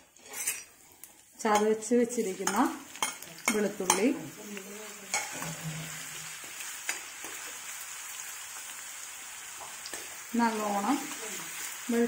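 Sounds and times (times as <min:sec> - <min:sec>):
garlic sizzling in hot oil: 0:00.0 - 0:12.0
spoon clinking against pan: 0:02.4 - 0:04.1.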